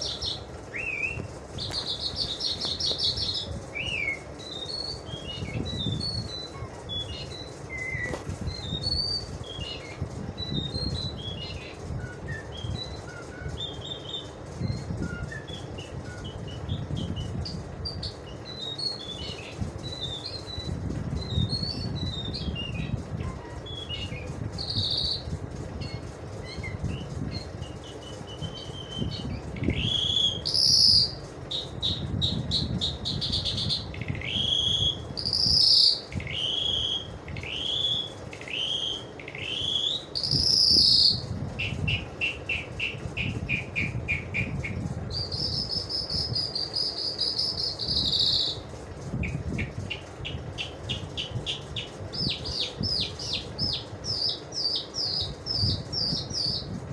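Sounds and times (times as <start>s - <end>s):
low background rumble: 0.0s - 56.9s
lark singing: 27.4s - 48.6s.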